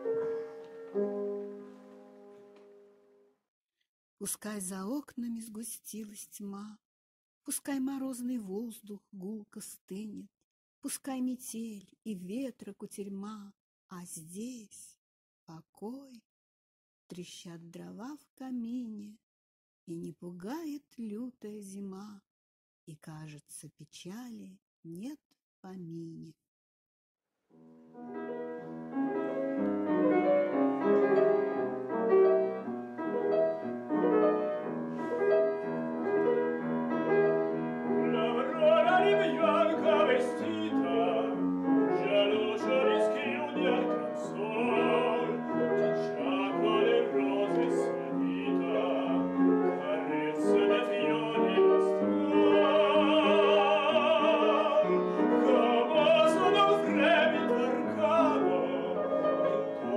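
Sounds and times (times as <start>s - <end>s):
grand piano: 0.0s - 3.2s, 27.9s - 59.9s
man singing classical: 37.8s - 59.9s.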